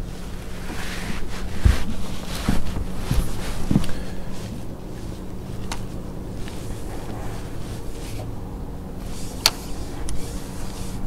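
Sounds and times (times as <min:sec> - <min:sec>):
dull low thumps: 0:00.0 - 0:08.2
faint steady hum: 0:00.0 - 0:11.0
wind buffeting microphone: 0:00.0 - 0:11.0.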